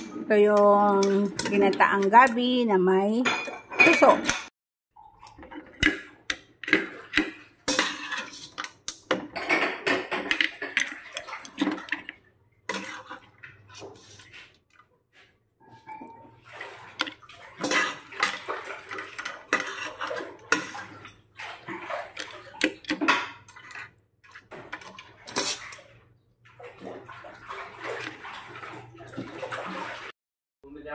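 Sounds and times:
utensil scraping and clinking on plate: 6.6 - 14.5, 16.9 - 21.2, 22.1 - 25.9.

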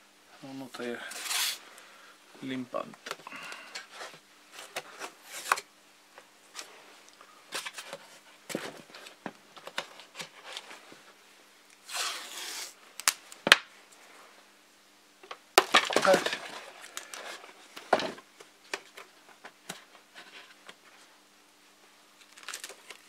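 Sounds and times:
tape ripping off roll: 11.8 - 13.7.

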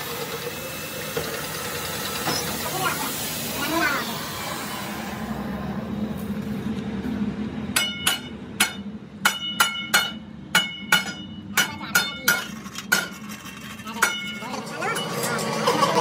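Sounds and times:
steady low hum: 2.7 - 15.0
hammer striking metal: 7.7 - 15.7.

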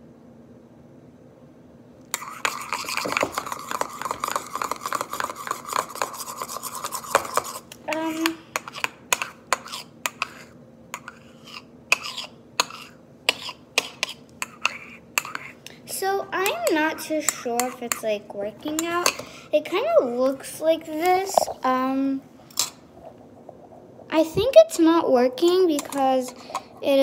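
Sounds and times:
spoon scraping in bowl: 2.1 - 15.6, 25.8 - 26.7.

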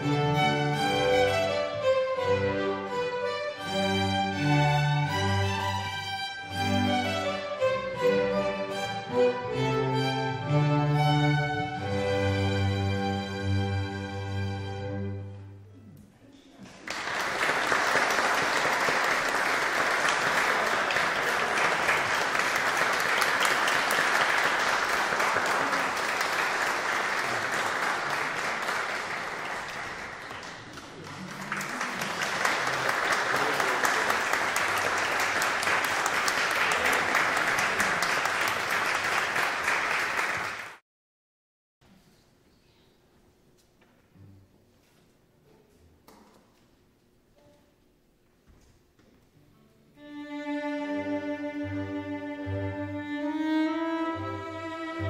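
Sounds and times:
audience applauding: 16.6 - 40.8
string orchestra chord: 50.0 - 55.0.

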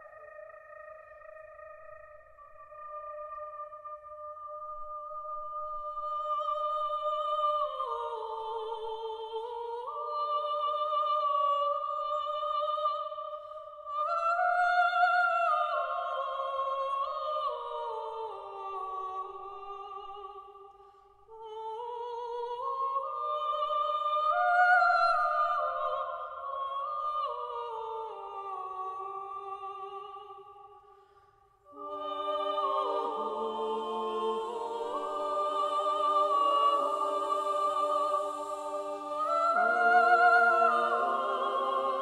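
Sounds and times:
women's choir singing a cappella: 5.7 - 20.5, 31.7 - 42.0.

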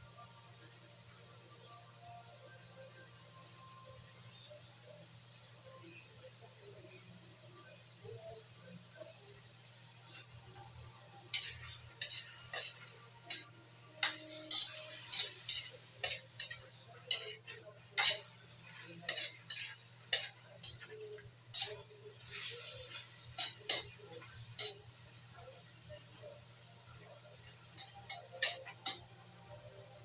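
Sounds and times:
faint frying sizzle: 0.0 - 30.0
spatula scraping a metal wok: 10.0 - 25.4, 27.4 - 29.2.

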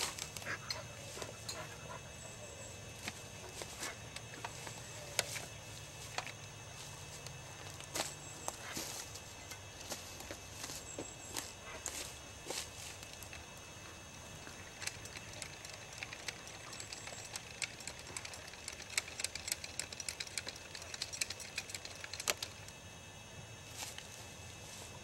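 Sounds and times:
footsteps on leaf litter: 6.8 - 13.3.

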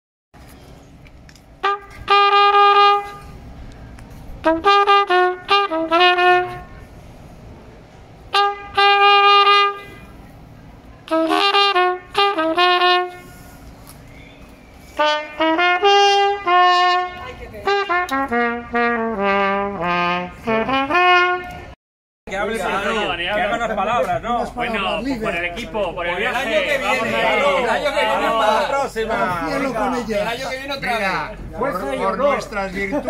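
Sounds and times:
solo trumpet melody: 1.6 - 3.4, 4.4 - 7.0, 8.3 - 10.2, 11.0 - 13.6, 14.9 - 21.8.

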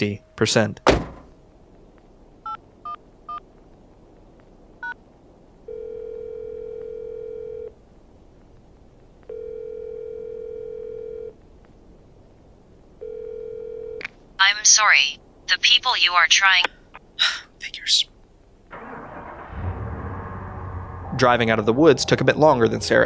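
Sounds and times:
faint low hiss: 0.0 - 23.0
phone ringing tone: 5.7 - 7.8, 9.3 - 11.4, 13.0 - 14.0.

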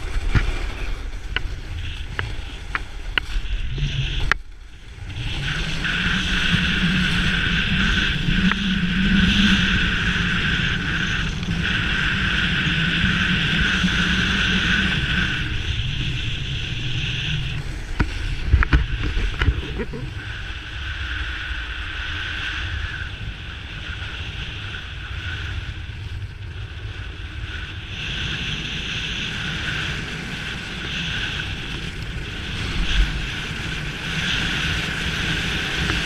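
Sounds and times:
snowboard edge scraping snow: 0.0 - 8.7, 11.1 - 21.6
wind buffeting microphone: 0.0 - 36.0.

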